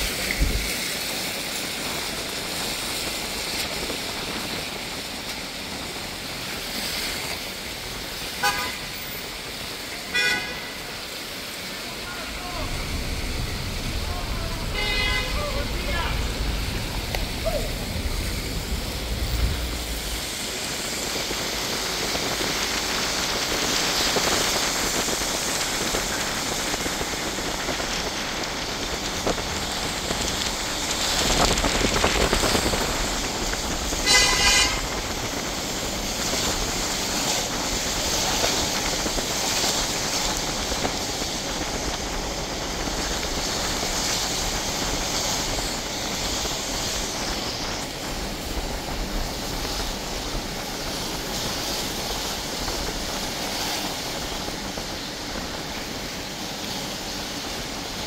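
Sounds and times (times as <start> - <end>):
heavy rain hissing: 0.0 - 58.0
tyres on wet road: 0.0 - 58.0
car horn honking: 8.4 - 8.9, 10.1 - 10.9, 12.6 - 18.0, 34.0 - 35.0
vehicle passing: 10.6 - 22.0.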